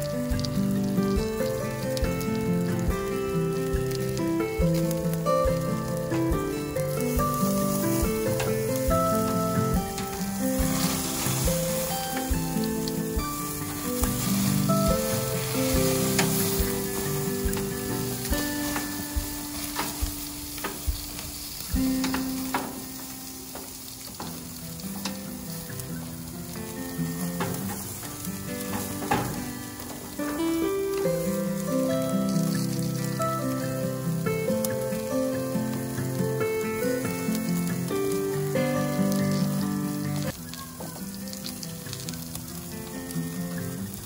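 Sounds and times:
background music: 0:00.0 - 0:20.3
ribs sizzling on a grill: 0:00.0 - 0:44.0
metal tongs clicking on grate: 0:13.6 - 0:24.4, 0:27.4 - 0:31.3.

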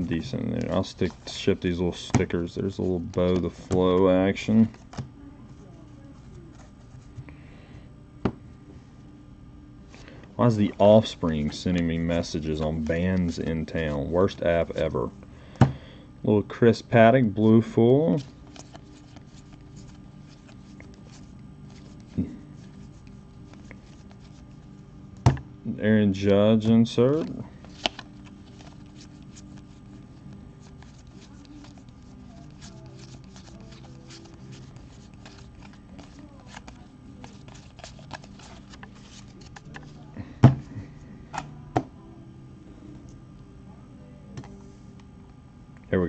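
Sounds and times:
low steady hum: 0:00.0 - 0:46.0
cards flipping and rustling: 0:00.2 - 0:05.1, 0:18.1 - 0:24.6, 0:27.1 - 0:40.0.

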